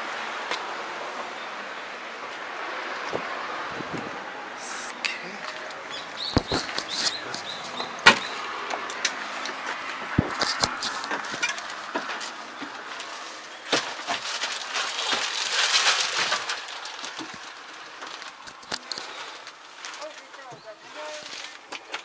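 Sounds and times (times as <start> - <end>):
plastic seat cover rustling: 5.6 - 22.0
knocks and sharp clicks: 6.3 - 9.2.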